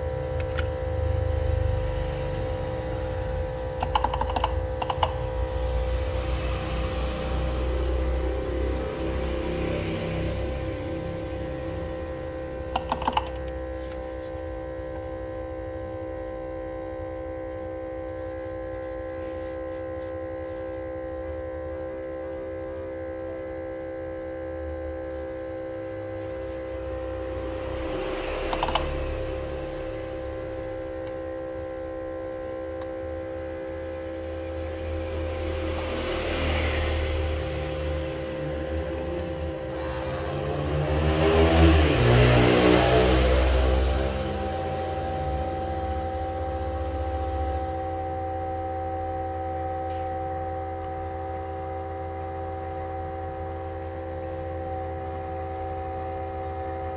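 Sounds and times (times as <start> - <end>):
rumble and hiss: 0.0 - 49.2
machine hum: 0.0 - 56.9
tissue rubbing on glass: 13.7 - 27.9.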